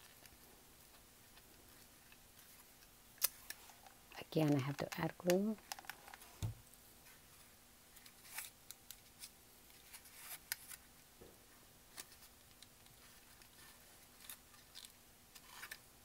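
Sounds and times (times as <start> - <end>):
paper rustling and crinkling: 5.8 - 10.9.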